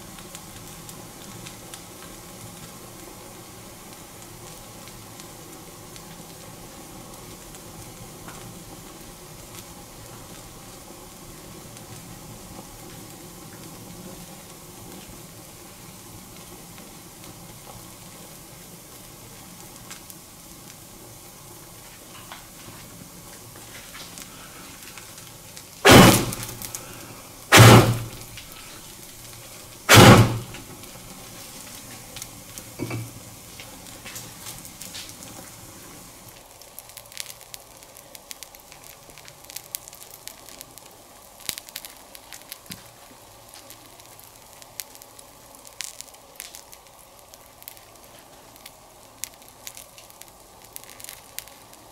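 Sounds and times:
fire hissing and crackling: 0.0 - 51.9
loud bangs: 25.8 - 26.8, 27.5 - 28.4, 29.9 - 30.7.

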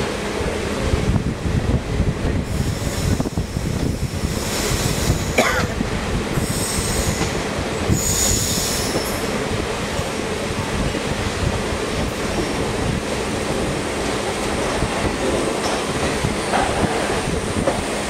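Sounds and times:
train wheels rumbling on rails: 0.0 - 18.0
train wheels squealing: 6.4 - 9.4.

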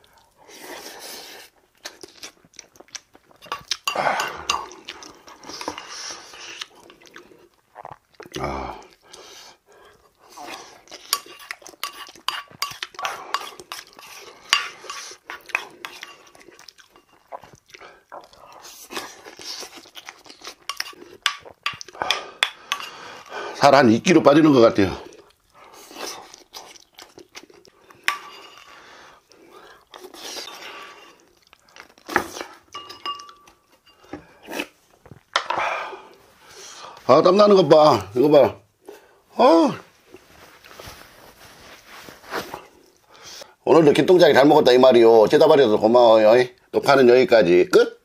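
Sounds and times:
spoon clinking on bowl: 32.7 - 34.0.

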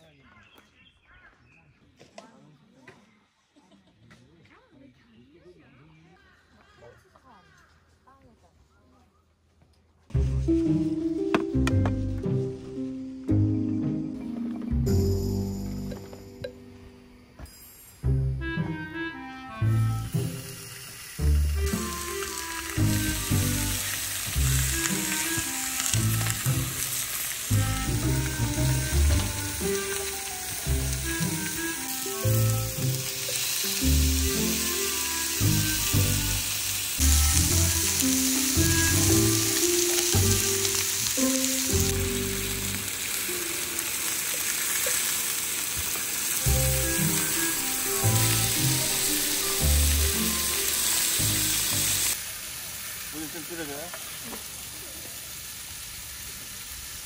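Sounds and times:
background music with bass line: 10.2 - 16.7, 27.5 - 40.7
food sizzling in a hot pan: 19.6 - 57.0.

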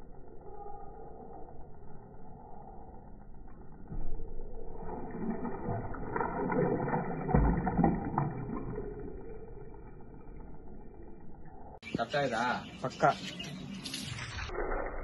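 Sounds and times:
water splashing in glass tank: 4.6 - 11.5.

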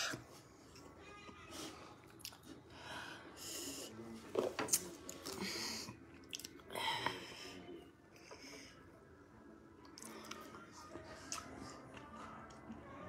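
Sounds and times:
person chewing: 2.0 - 2.5, 6.2 - 6.6.

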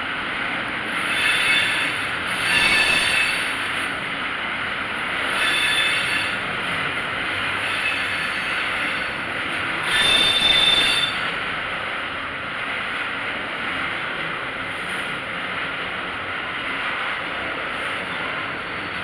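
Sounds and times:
train wheels on rails: 0.0 - 19.0
high-pitched wheel squeal: 1.1 - 3.6, 5.3 - 6.4, 7.6 - 9.2, 9.8 - 11.3.

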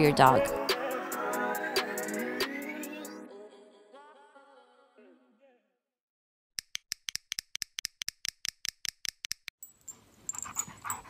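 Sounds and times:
sharp rapid clicks: 6.6 - 9.5
dog panting and snuffling: 10.2 - 11.0.

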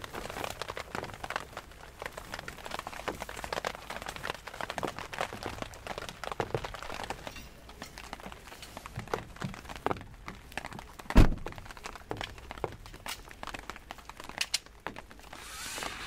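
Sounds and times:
small clicks and knocks: 6.4 - 15.4.

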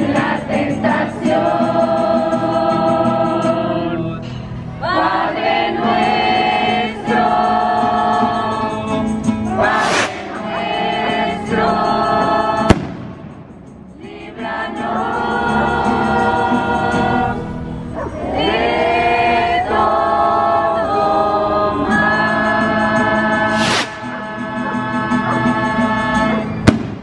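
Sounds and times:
acoustic guitar: 0.0 - 27.0
choir singing a hymn: 0.0 - 27.0
sharp bang: 9.6 - 10.6, 12.7 - 13.9, 23.5 - 24.1.

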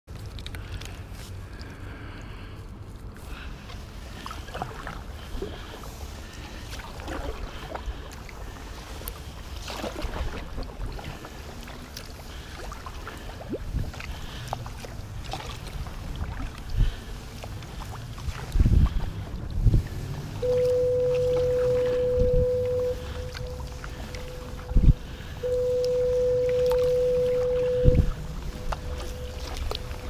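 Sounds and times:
kayak paddle splashing water: 0.3 - 30.0
wind rumble on microphone: 13.3 - 30.0.

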